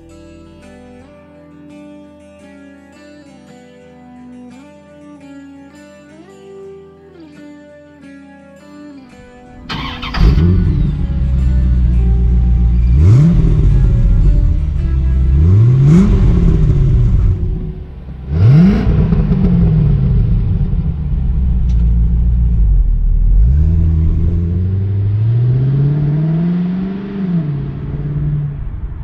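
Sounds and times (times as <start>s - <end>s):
sports car engine revving: 9.5s - 29.0s.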